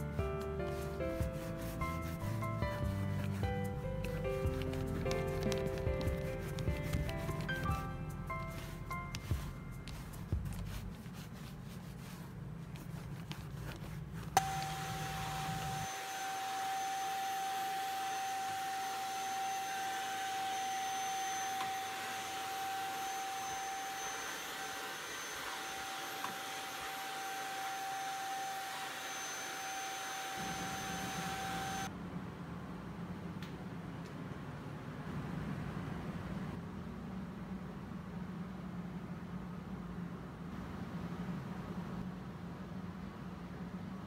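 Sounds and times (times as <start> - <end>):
faint rubbing: 0.0 - 14.5
vacuum cleaner running: 0.7 - 7.8, 8.4 - 10.8, 13.2 - 31.9.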